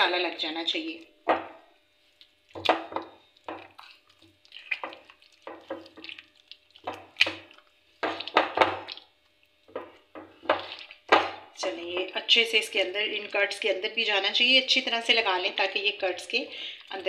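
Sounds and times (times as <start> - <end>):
wet squelching of kneading hand: 3.4 - 9.2.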